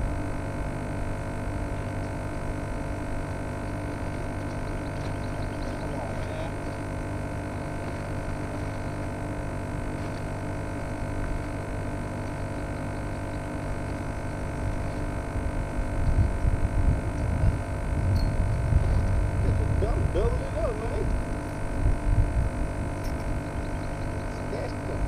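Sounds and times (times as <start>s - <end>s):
steady hum with fixed tones: 0.0s - 25.0s
low rumble: 13.9s - 25.0s.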